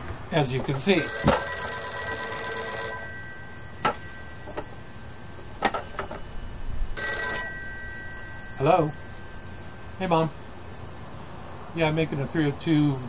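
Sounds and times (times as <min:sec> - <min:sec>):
telephone bell ringing: 0:00.9 - 0:11.2.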